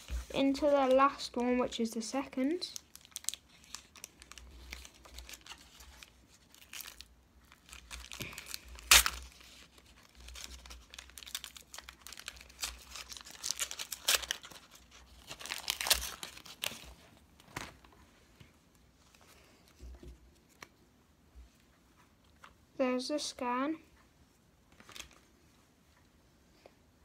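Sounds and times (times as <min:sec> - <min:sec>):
wrapper tearing and crinkling: 0:02.7 - 0:17.8.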